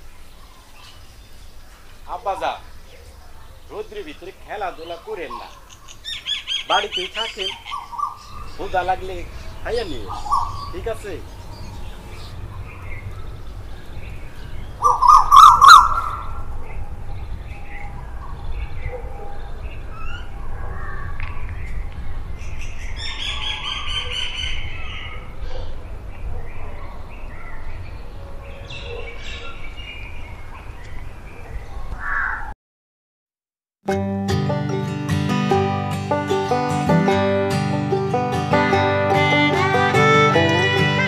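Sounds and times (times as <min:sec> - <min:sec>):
birds chirping and calling: 0:00.0 - 0:32.5.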